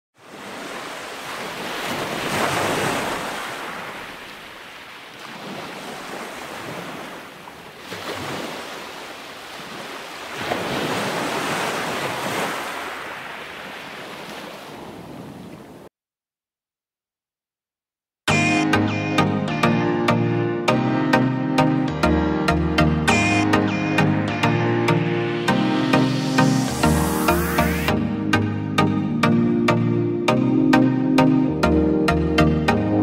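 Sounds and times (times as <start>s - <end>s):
waves breaking on shore: 0.2s - 15.9s.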